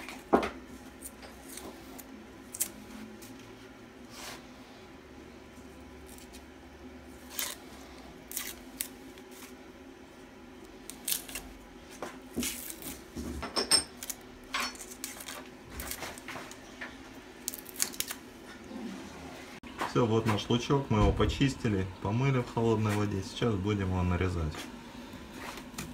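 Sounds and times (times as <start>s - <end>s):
knife peeling onion skin: 1.0s - 3.3s, 7.2s - 9.6s, 10.6s - 11.6s, 12.3s - 13.0s, 17.4s - 18.3s.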